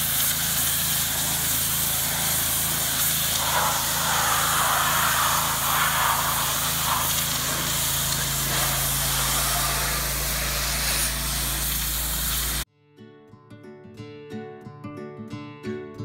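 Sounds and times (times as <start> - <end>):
high-pressure spray hissing: 0.0 - 12.6
pressure washer engine running: 0.0 - 12.6.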